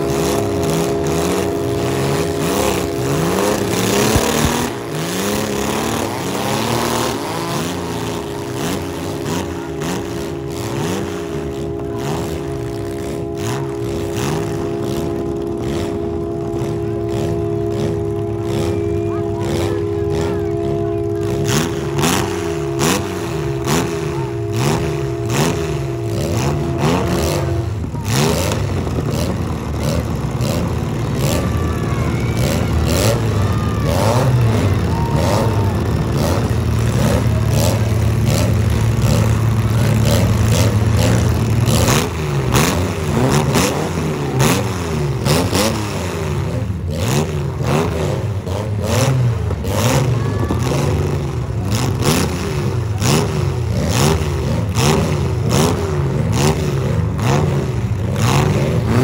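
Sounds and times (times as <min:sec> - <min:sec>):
steady held tone: 0:00.0 - 0:46.9
car engines revving: 0:00.0 - 0:59.0.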